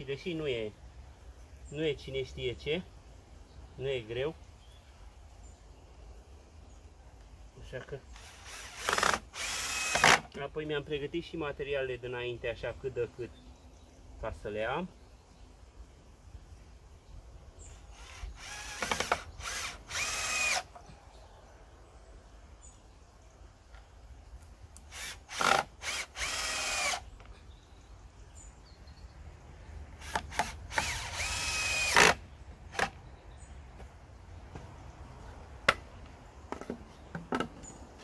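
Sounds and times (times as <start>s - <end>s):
cordless drill whining: 8.2s - 10.2s, 18.0s - 20.8s, 24.9s - 27.0s, 30.0s - 32.2s
drill trigger pulses: 8.2s - 10.2s, 18.0s - 20.7s, 24.9s - 27.0s, 30.0s - 32.2s.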